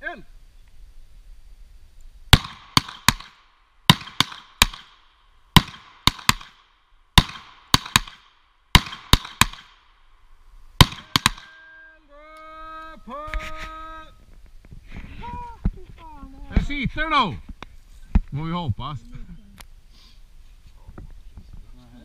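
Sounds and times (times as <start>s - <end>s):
quieter gunshot reports: 2.3s - 5.0s, 5.6s - 10.0s, 10.8s - 11.6s
loud revolver shots: 2.3s - 10.0s, 10.8s - 11.6s.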